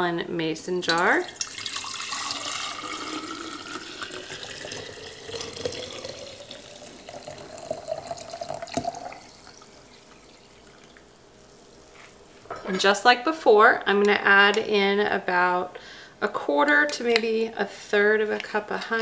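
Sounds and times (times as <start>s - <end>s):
tea pouring into glass jar: 1.2s - 11.0s.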